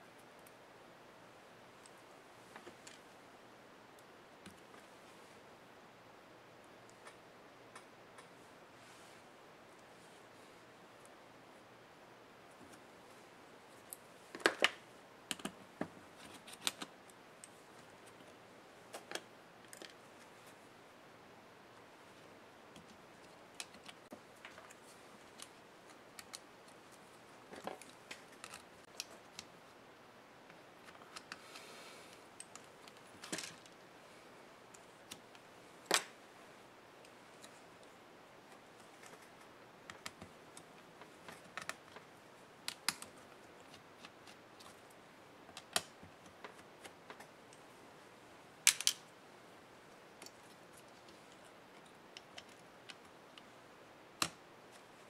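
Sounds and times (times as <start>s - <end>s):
small clicks and taps of parts: 13.8s - 20.0s, 38.5s - 42.1s, 42.7s - 44.8s, 48.6s - 49.1s, 50.2s - 53.6s, 54.2s - 54.8s.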